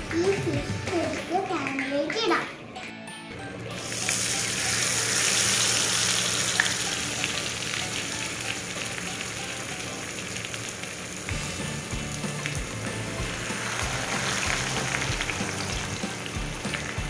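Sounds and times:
oil crackling and popping: 3.6 - 17.0
fish sizzling in hot oil: 3.7 - 17.0.

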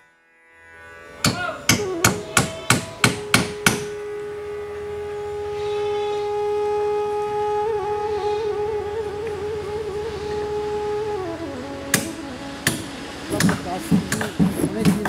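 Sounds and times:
held musical note: 1.1 - 15.0
hammer blows on wooden hull: 1.3 - 4.0, 11.9 - 15.0.

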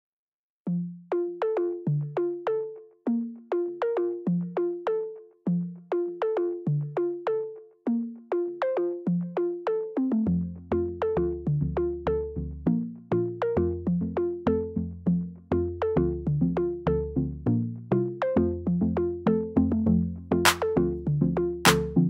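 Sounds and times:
melody of plucked notes: 0.7 - 14.8.

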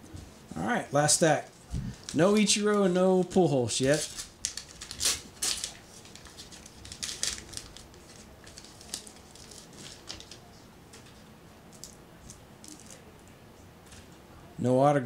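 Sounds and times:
cards rustling: 1.8 - 10.5, 11.7 - 13.1
wrapper tearing and crinkling: 3.8 - 10.4.

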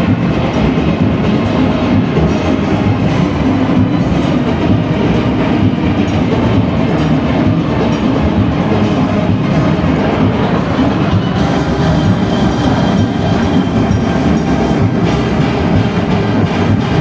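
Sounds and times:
massed steel pans: 0.0 - 17.0
percussion clatter: 0.0 - 17.0.

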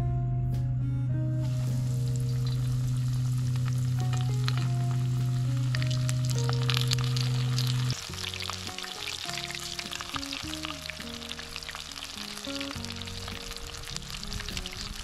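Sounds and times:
background music: 0.0 - 15.0
chicken frying in hot oil: 1.4 - 15.0.

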